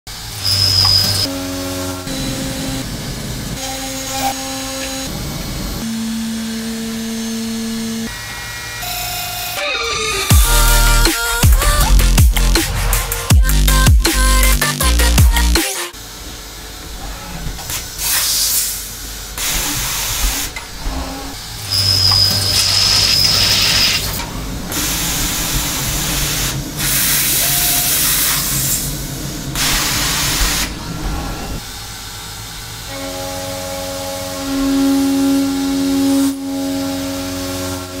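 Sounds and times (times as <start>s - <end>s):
drill hissing into metal: 17.7s - 20.6s, 21.5s - 29.0s.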